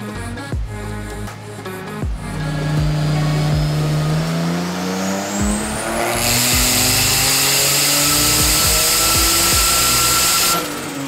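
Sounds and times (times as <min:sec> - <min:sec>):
engine revving under load: 0:00.0 - 0:11.0
music beat: 0:00.0 - 0:11.0
rising turbo whistle: 0:03.1 - 0:11.0.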